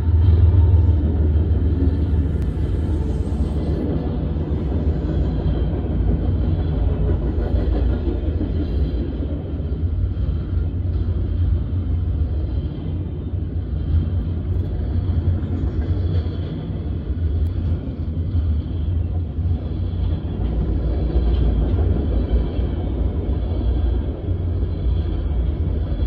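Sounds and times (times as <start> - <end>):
freight train wheels rumbling on rail: 0.0 - 26.0.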